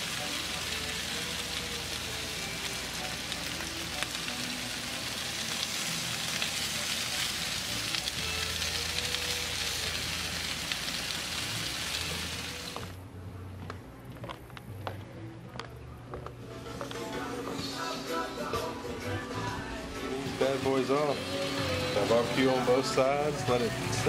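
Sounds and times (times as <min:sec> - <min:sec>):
meat sizzling on a grill: 0:00.0 - 0:13.0, 0:20.2 - 0:24.0.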